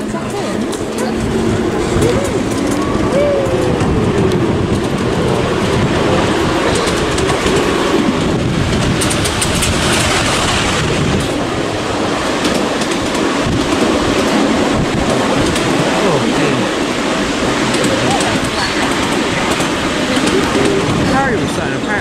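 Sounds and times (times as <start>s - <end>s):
miniature train wheels clicking on track: 0.0s - 11.4s, 17.7s - 20.9s
passing miniature train: 0.0s - 22.0s.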